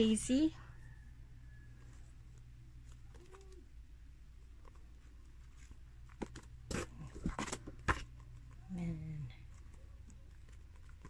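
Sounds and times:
room hum: 0.0 - 11.0
paper pages rustling: 4.6 - 8.6.

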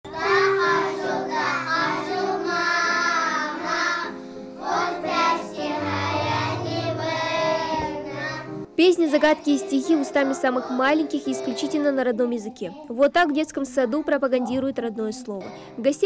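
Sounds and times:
children singing: 0.1 - 11.9
instrumental accompaniment: 0.1 - 13.1.

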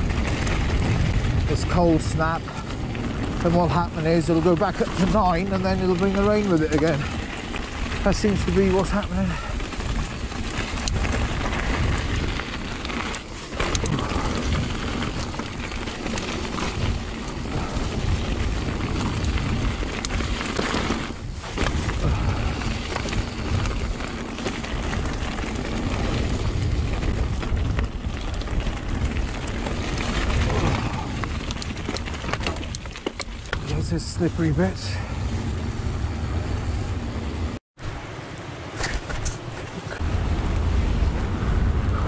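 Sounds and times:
bike clicks and rattles: 0.0 - 37.6, 38.3 - 40.0
bike tyres crunching over gravel: 0.0 - 42.0
wind rumble on microphone: 0.0 - 42.0.

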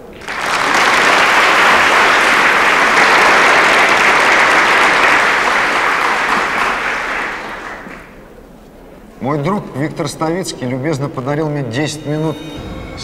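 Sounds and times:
large audience applauding: 0.0 - 8.3.

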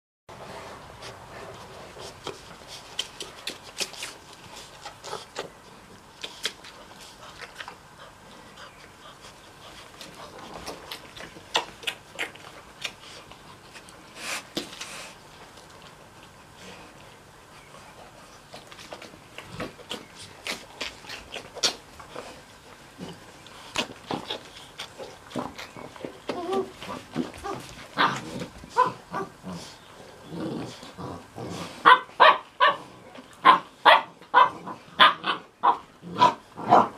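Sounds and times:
puppies suckling: 0.7 - 31.8.

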